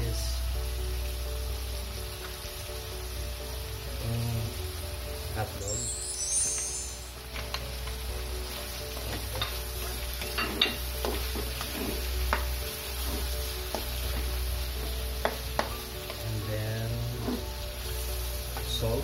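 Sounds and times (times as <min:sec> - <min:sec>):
chicken sizzling in a wok: 0:00.0 - 0:19.0
spatula scraping a pan: 0:09.0 - 0:14.3, 0:17.1 - 0:17.6.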